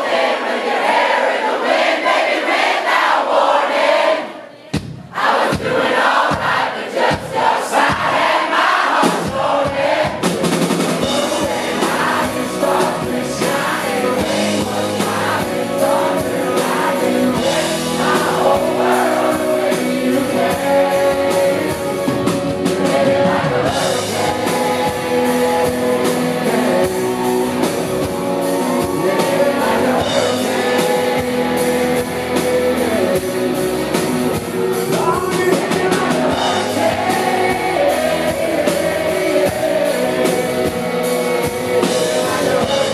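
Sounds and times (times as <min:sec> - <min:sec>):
drums: 0:00.1 - 0:42.9
bass guitar: 0:09.0 - 0:42.9
man singing: 0:09.3 - 0:27.5, 0:28.6 - 0:33.6, 0:34.6 - 0:42.9.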